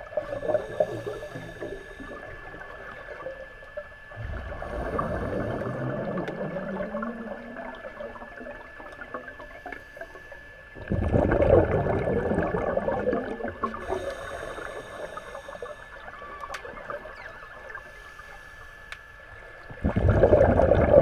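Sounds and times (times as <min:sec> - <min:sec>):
rush of exhaled bubbles: 0:04.2 - 0:08.2, 0:10.8 - 0:14.0, 0:19.7 - 0:21.0.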